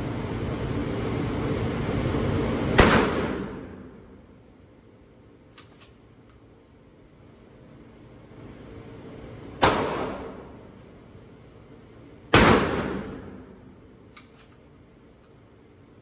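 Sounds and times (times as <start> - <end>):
shotgun blasts with echo: 2.8 - 3.9, 9.6 - 10.4, 12.3 - 13.4.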